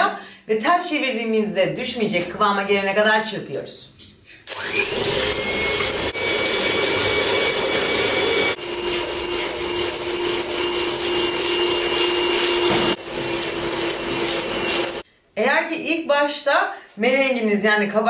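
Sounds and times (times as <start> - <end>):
electric hand mixer running: 4.5 - 15.0.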